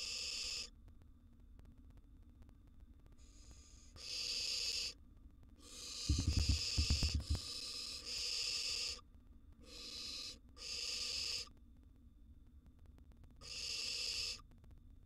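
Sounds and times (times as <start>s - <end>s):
owl chicks hissing calls: 0.0s - 0.7s, 3.2s - 5.0s, 5.6s - 9.0s, 9.6s - 11.5s, 13.4s - 14.4s.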